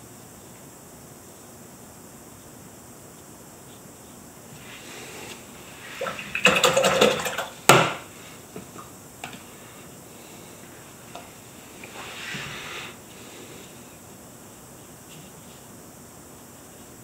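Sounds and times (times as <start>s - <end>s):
paintbrush swished in water cup: 11.8s - 12.8s.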